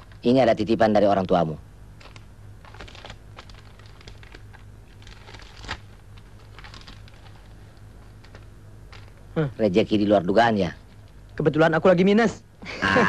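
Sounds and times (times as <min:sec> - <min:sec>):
steady low hum: 0:00.0 - 0:13.0
paper rustling: 0:02.0 - 0:09.2.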